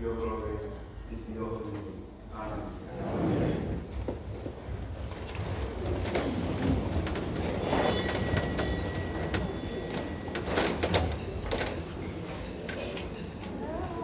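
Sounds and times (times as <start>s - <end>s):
people shuffling and rustling: 2.8s - 14.0s.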